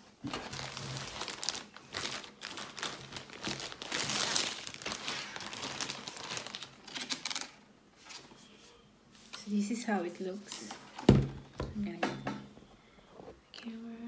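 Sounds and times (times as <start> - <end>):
plastic bag crinkling: 0.2 - 7.6.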